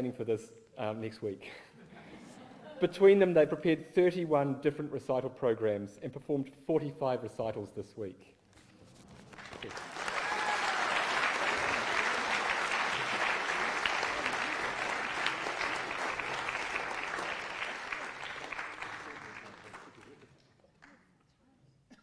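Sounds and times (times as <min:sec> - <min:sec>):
audience applauding: 0:09.2 - 0:21.0.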